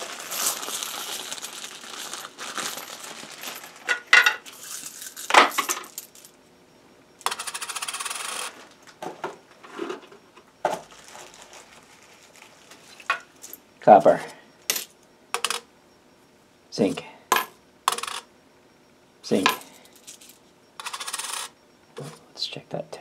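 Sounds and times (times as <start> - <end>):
coins rattling: 0.0 - 6.4, 7.2 - 8.5, 17.4 - 18.2, 19.5 - 21.5
coins clinking on metal pan: 0.3 - 6.2, 14.7 - 15.6, 17.4 - 18.2, 19.5 - 21.5.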